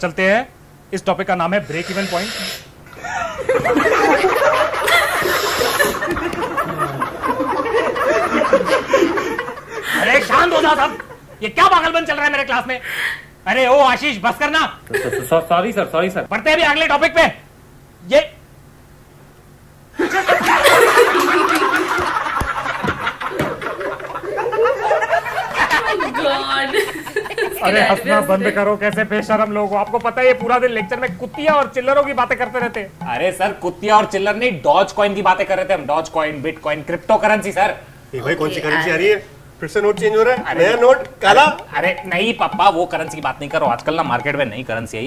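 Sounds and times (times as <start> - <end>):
people laughing: 2.9 - 11.3, 14.9 - 15.5, 20.0 - 29.1.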